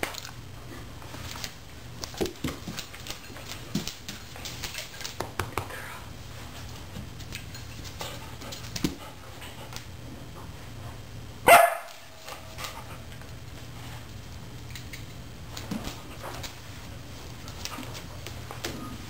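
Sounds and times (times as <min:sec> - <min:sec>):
dog barking: 0:11.5 - 0:12.0.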